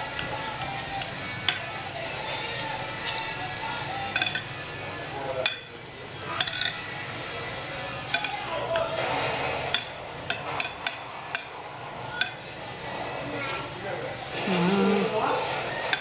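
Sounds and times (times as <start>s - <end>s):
cutlery clinking on glass plate: 4.1s - 4.6s, 5.4s - 6.9s, 8.1s - 11.6s, 15.8s - 16.0s.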